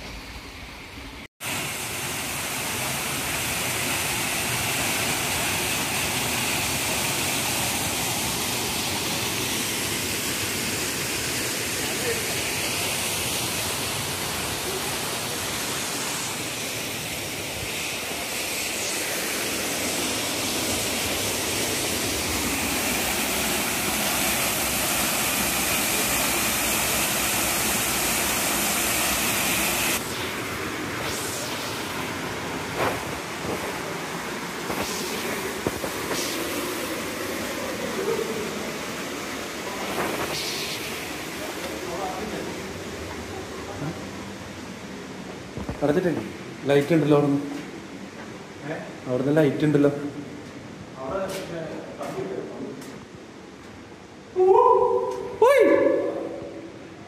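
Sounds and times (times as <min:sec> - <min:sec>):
water rushing over rocks: 0:01.4 - 0:43.5.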